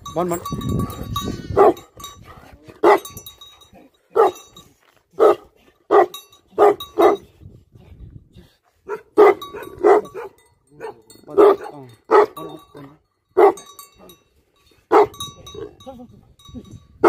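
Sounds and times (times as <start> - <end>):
large dog barking: 1.5 - 2.0, 2.8 - 3.2, 4.1 - 4.5, 5.2 - 7.2, 8.8 - 13.8, 14.9 - 15.8.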